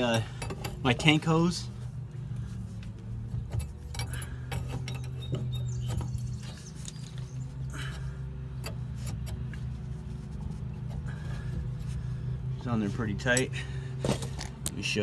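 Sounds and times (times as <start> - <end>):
steady low hum: 0.0 - 14.7
clinks and taps of hose fittings: 3.4 - 7.3.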